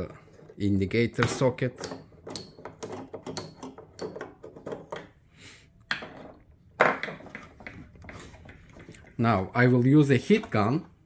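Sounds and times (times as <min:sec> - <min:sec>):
plastic clicks and rattles: 0:01.3 - 0:05.1.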